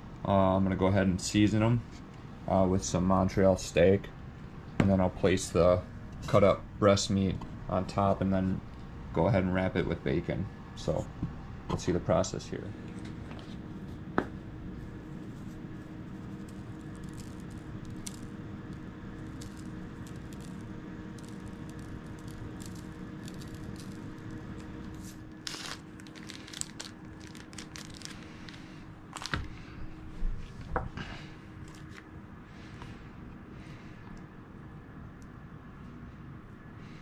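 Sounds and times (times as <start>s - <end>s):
steady low hum: 0.0s - 37.0s
plastic package crinkling: 16.3s - 18.4s, 19.2s - 20.6s, 21.2s - 29.5s.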